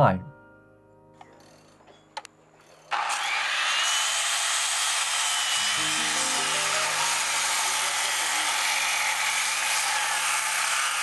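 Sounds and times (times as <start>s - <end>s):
circular saw cutting wood: 2.6s - 11.0s
background music: 5.6s - 8.4s.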